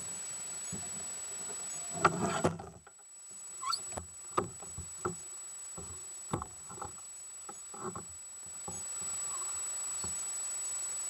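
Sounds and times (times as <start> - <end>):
short rising squeak: 3.6 - 3.9.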